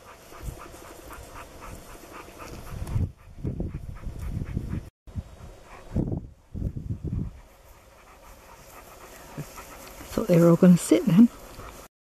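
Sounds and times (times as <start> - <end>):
dog panting hard: 0.0 - 11.9.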